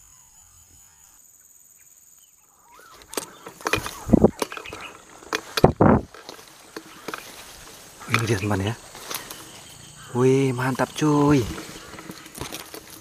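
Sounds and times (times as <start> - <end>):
leaves and branches rustling: 2.1 - 13.0.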